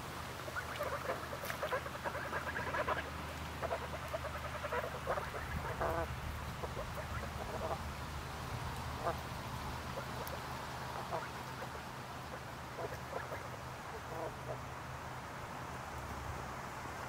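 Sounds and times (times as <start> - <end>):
waterfowl chattering calls: 0.4 - 8.2, 8.9 - 14.6.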